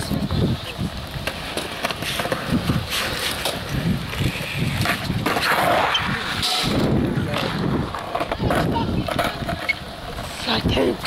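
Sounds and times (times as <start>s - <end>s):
wind buffeting microphone: 0.0s - 1.5s, 2.2s - 11.0s
skateboard clacking and scraping: 0.0s - 11.0s
skateboard wheels rolling on concrete: 0.0s - 11.0s.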